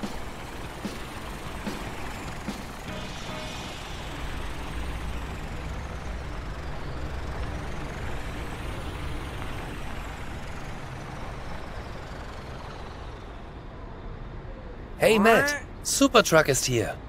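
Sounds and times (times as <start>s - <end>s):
cartoon truck engine running: 0.0s - 13.6s.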